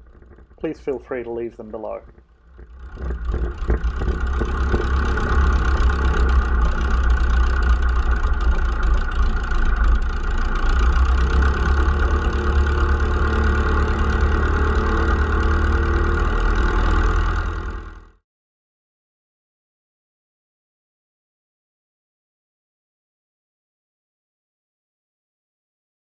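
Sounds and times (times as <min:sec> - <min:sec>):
aircraft engine running at low power: 0:00.0 - 0:18.1
propeller turning: 0:00.0 - 0:18.2.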